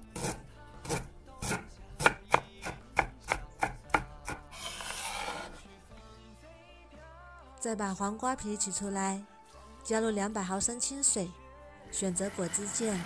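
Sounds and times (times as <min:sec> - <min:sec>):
knife scraping board: 0:00.0 - 0:01.6, 0:04.5 - 0:05.7
knife chopping on cutting board: 0:00.1 - 0:05.5.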